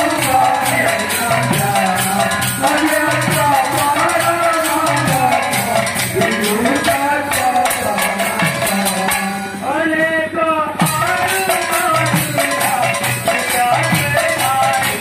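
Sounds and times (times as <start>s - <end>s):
jingling cymbals: 0.0s - 9.6s
person singing: 0.0s - 15.0s.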